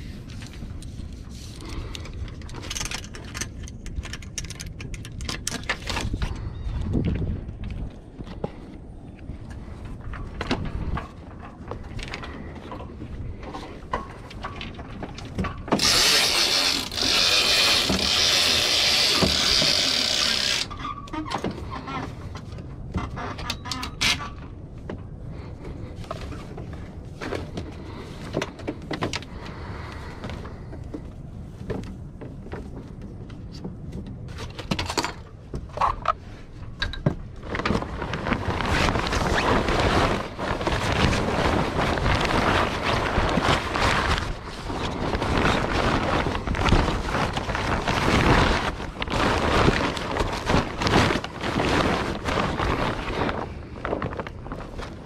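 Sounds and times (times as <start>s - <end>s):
sailcloth rustling: 8.0s - 21.0s, 37.2s - 55.0s.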